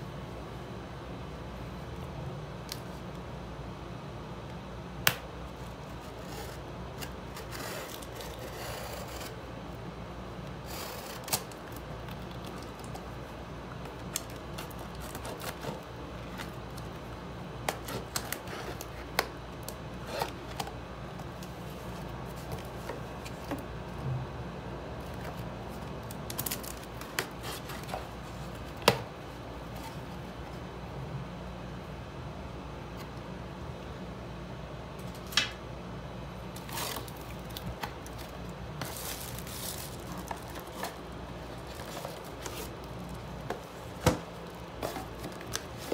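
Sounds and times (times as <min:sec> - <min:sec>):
knife cutting packing tape: 0:10.6 - 0:11.8, 0:14.0 - 0:16.5.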